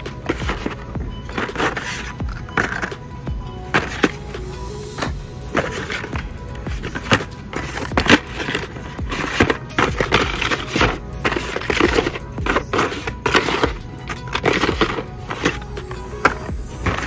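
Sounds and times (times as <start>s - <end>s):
plastic card packs clacking: 0.0s - 17.0s.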